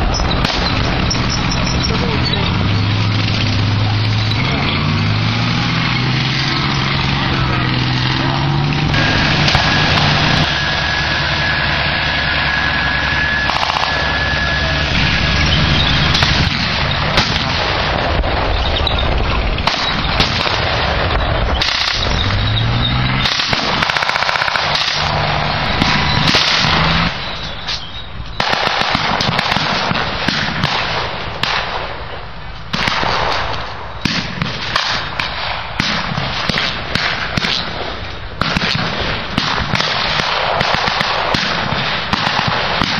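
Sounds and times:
rapid blank gunfire: 0.0s - 1.1s, 16.1s - 18.5s, 19.6s - 22.2s, 23.2s - 25.1s, 25.8s - 27.2s, 28.4s - 32.1s, 32.7s - 42.9s
engine revving: 0.0s - 30.9s
armoured vehicle engines running: 0.0s - 42.9s.

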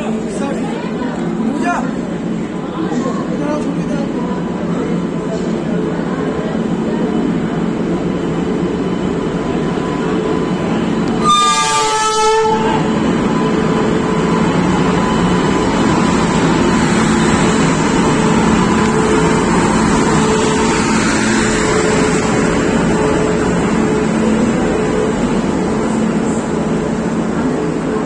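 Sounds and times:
train coaches rumbling past: 0.0s - 28.0s
train horn blast: 11.1s - 13.0s.

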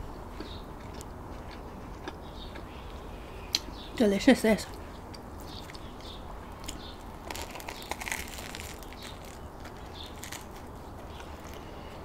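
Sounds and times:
bread crust crunching while chewed: 0.2s - 3.0s, 5.1s - 12.0s.

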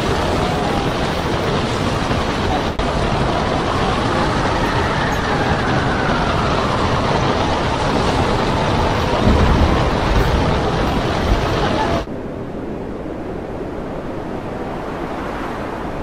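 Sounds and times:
heavy breaking seas: 0.0s - 12.1s
storm wind: 0.0s - 16.0s
low rumble: 0.3s - 12.2s.

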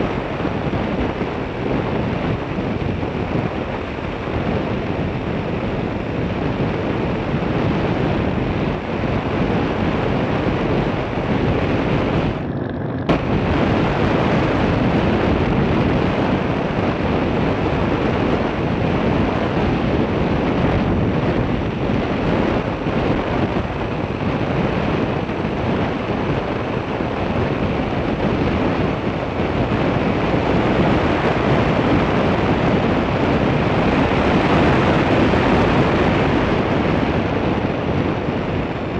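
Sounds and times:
wind rush on microphone: 0.0s - 38.9s
road noise: 10.0s - 17.0s.

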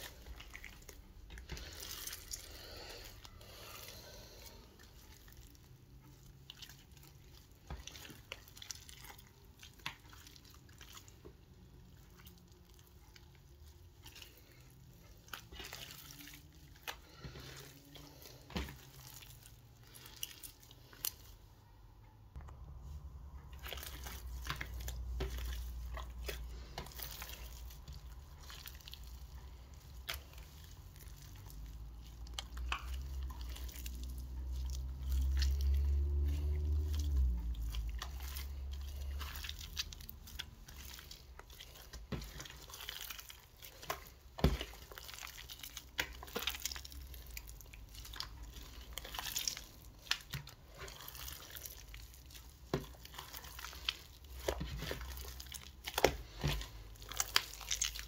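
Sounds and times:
slime squelching: 0.0s - 58.0s.

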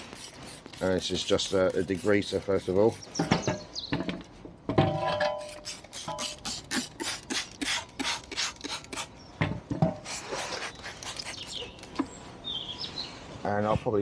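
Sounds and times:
spray bottle squirting: 0.0s - 3.1s, 5.4s - 9.1s, 10.0s - 12.0s.

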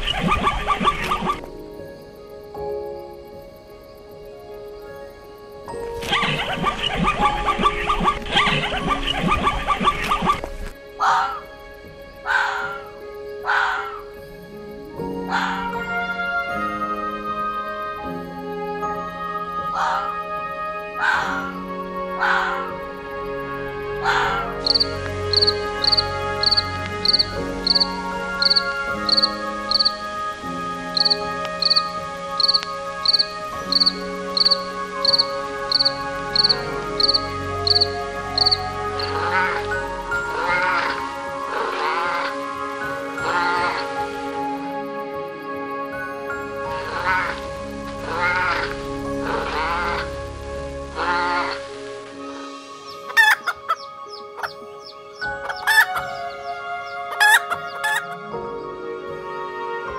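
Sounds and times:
chickens calling: 0.0s - 1.5s, 6.0s - 11.5s, 12.2s - 14.2s, 15.2s - 15.9s, 19.6s - 23.0s, 23.8s - 44.4s, 46.4s - 50.3s, 50.9s - 51.8s, 52.8s - 58.3s
cricket chirping: 0.0s - 58.9s
background music: 0.0s - 59.9s.

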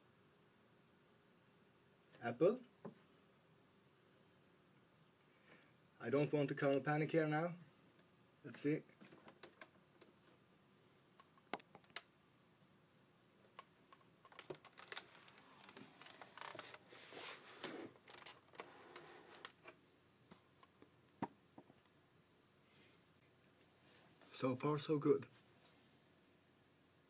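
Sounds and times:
faint clicks and knocks: 8.9s - 10.2s
soft rustling handling noise: 13.9s - 21.0s, 22.6s - 26.2s.

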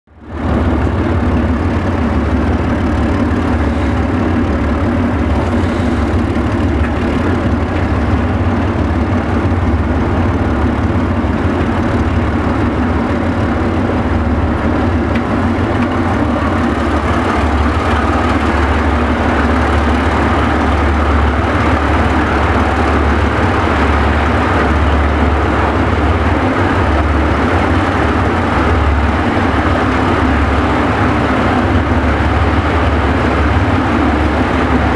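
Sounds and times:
locomotive engine drone: 0.0s - 34.9s
train rumble and clatter: 0.1s - 34.9s.

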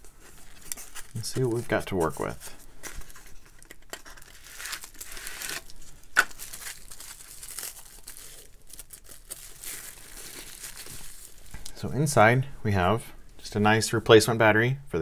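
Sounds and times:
bubble wrap crinkling: 0.0s - 11.9s.

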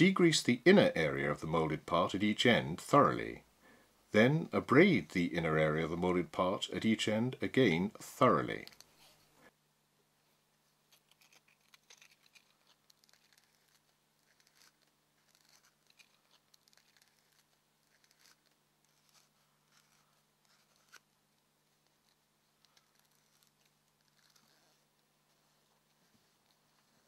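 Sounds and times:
emery cloth scratching: 10.9s - 21.2s, 21.8s - 27.0s.

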